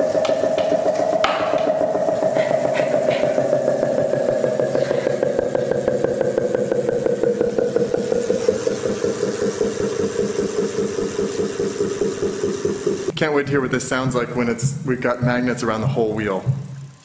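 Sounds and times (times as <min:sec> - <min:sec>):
rapidly pulsing speaker buzz: 0:00.0 - 0:17.0.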